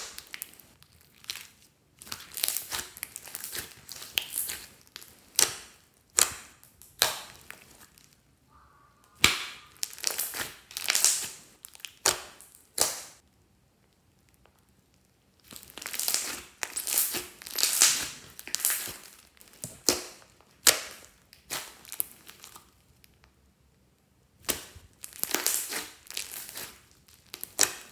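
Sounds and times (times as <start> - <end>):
slime crackling sticky: 0.0 - 8.3, 9.0 - 13.2, 13.9 - 23.2, 24.4 - 27.9
slime popping sharply: 9.1 - 11.3.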